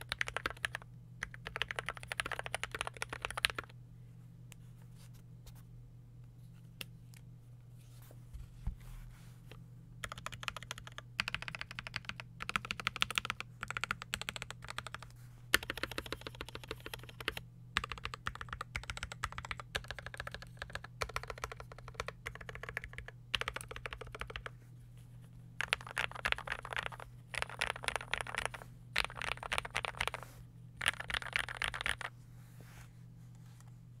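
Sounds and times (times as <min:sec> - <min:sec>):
mechanical keyboard typing: 0:00.0 - 0:03.7, 0:10.0 - 0:24.5, 0:25.6 - 0:30.2, 0:30.8 - 0:32.1
steady low hum: 0:00.0 - 0:34.0.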